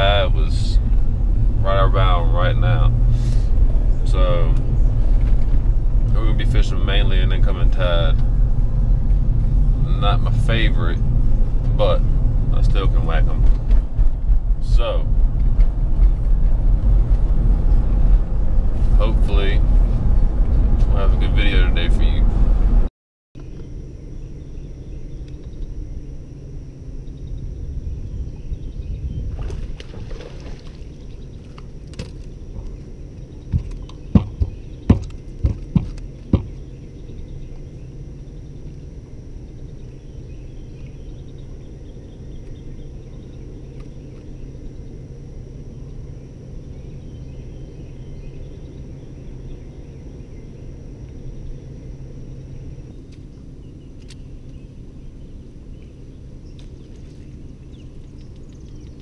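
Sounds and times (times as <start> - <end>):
low rumble: 0.0 - 59.0
sharp knocks on boat deck: 33.5 - 36.6.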